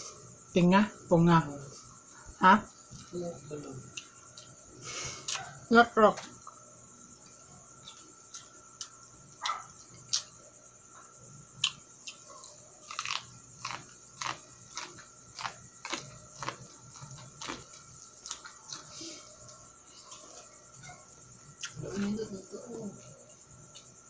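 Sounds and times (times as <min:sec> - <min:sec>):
crunching corn kernels: 0:11.6 - 0:19.1.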